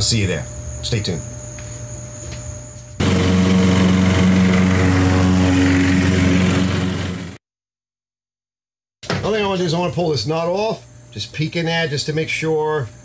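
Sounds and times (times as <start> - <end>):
engine running: 3.0 - 7.4.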